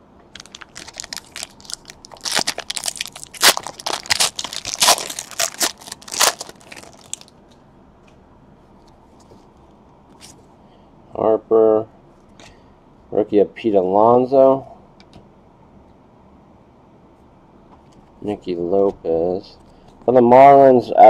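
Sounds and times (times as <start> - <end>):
foil wrapper crinkling: 0.4 - 7.4.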